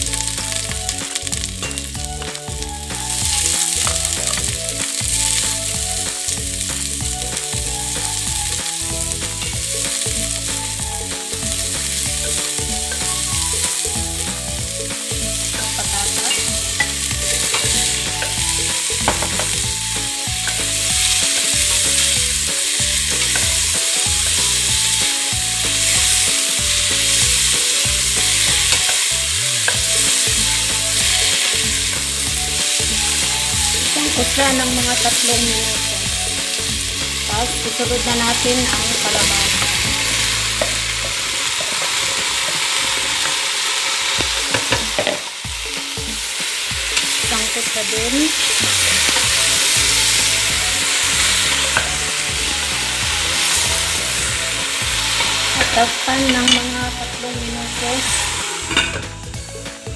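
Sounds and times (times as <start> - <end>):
wooden spatula stirring: 0.0 - 45.2, 46.0 - 56.8
vegetables sizzling in oil: 0.0 - 59.9.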